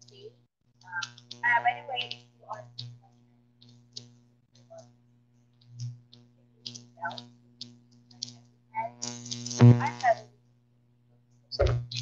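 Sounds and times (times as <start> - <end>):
woman's voice: 0.0 - 3.3, 8.8 - 9.0, 9.6 - 10.3
steady low hum: 0.0 - 12.0.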